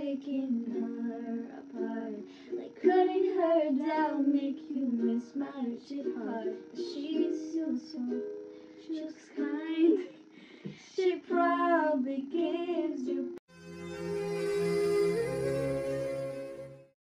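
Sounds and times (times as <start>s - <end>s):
ukulele strumming: 0.0s - 13.4s
young female voices singing: 0.0s - 13.4s
backing music with held tones: 0.0s - 17.0s.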